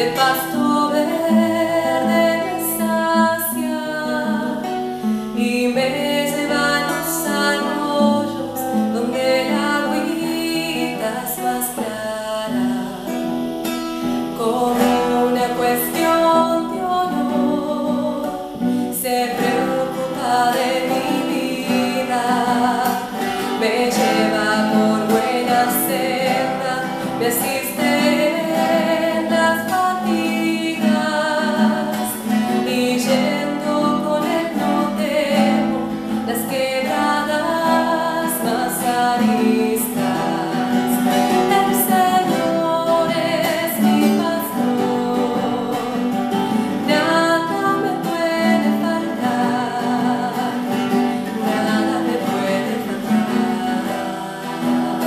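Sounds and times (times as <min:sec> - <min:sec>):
strummed acoustic guitar: 0:00.0 - 0:55.0
woman singing: 0:00.0 - 0:55.0.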